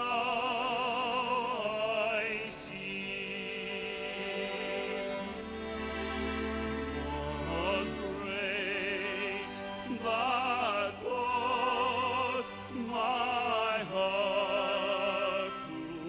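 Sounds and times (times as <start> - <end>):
soft accompaniment: 0.0 - 16.0
operatic solo singing: 6.8 - 16.0.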